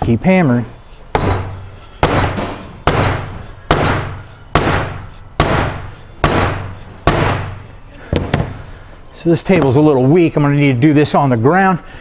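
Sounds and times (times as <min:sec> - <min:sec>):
hammer striking metal cup: 0:01.1 - 0:08.4.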